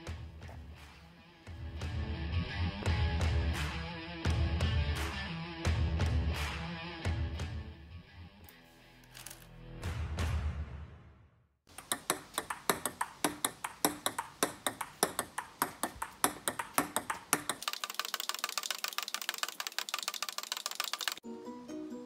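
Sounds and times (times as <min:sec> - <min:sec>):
table tennis ball clicks: 0:11.7 - 0:21.2.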